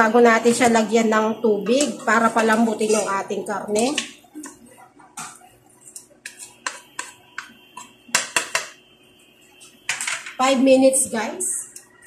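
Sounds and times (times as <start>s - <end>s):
wooden spatula scraping metal pot: 1.8s - 3.3s.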